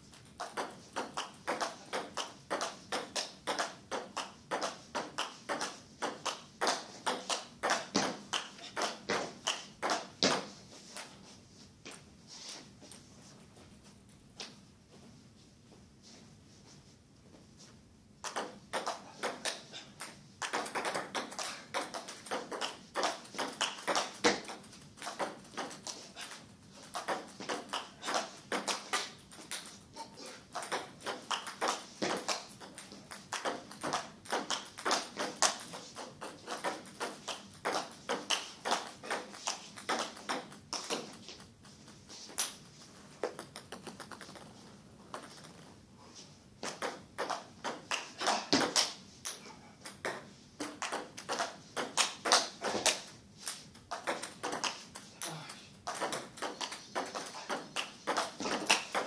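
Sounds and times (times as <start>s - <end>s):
table tennis ball clicking: 18.2s - 26.0s, 43.2s - 45.7s.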